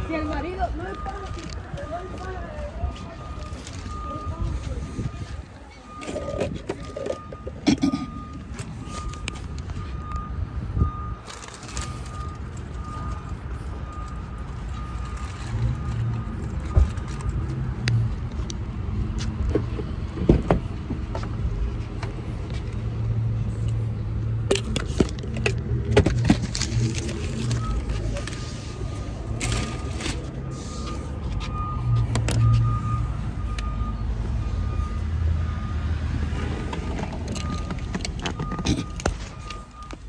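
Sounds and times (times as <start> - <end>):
car warning chime beeping: 0.0 - 11.2, 28.8 - 35.9, 37.3 - 40.0.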